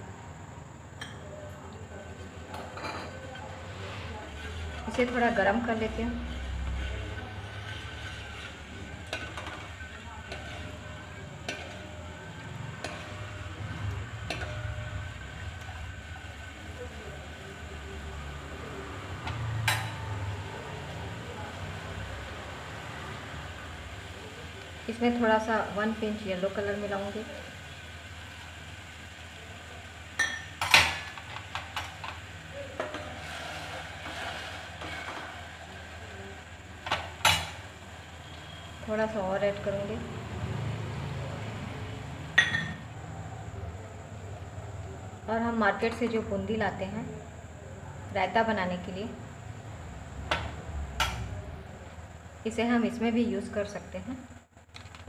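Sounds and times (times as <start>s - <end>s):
metal spoon stirring in pan: 2.5s - 20.2s, 30.2s - 38.8s
spoon clinking against pan: 30.2s - 30.7s.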